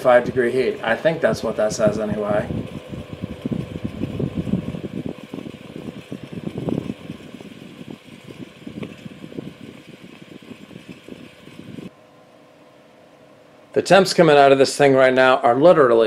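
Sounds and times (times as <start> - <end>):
hot air blasting onto microphone: 0.0 - 11.9
small fan humming: 0.0 - 16.0.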